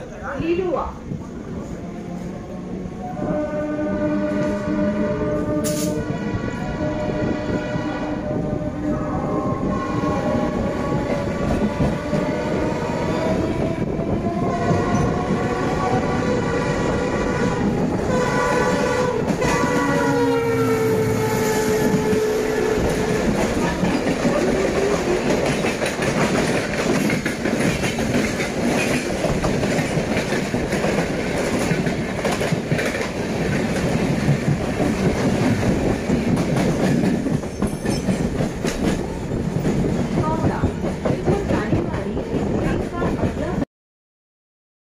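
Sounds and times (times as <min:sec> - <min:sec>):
train coaches rushing past: 0:00.0 - 0:43.7
locomotive horn blast: 0:03.0 - 0:12.8, 0:16.2 - 0:23.2.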